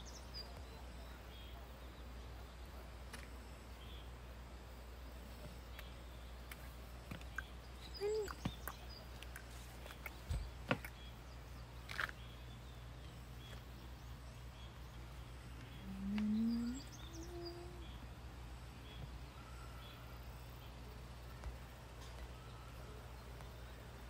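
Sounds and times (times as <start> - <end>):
faint bird chirps: 5.3 - 24.0
low rising voiced sound: 15.7 - 18.0.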